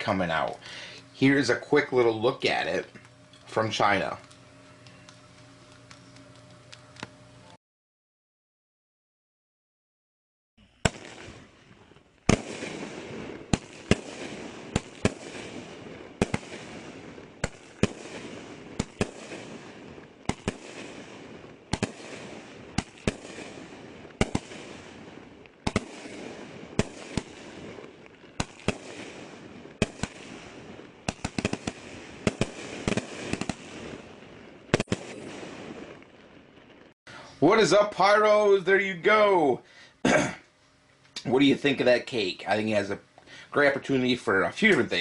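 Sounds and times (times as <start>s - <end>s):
firework cake bangs: 12.2s - 36.0s.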